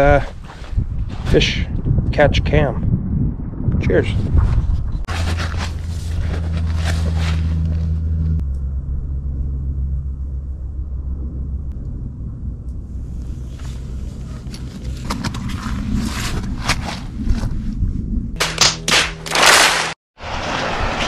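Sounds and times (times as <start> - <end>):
low motor hum: 4.8 - 18.4.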